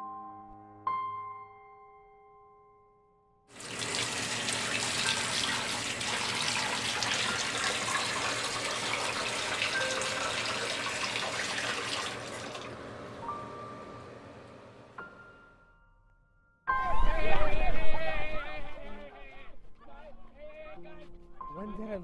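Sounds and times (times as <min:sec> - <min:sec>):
tap water running into basin: 0:03.5 - 0:13.0.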